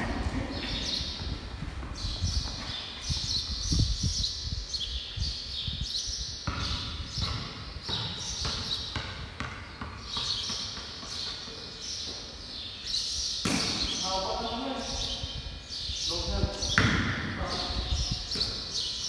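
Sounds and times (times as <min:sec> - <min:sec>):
basketball bouncing on concrete: 0:06.4 - 0:11.4, 0:16.7 - 0:17.2.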